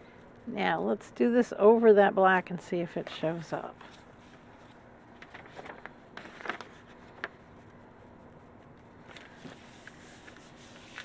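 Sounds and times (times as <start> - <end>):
paper rustling: 3.8 - 11.0
hands scuffing paper: 9.1 - 11.0.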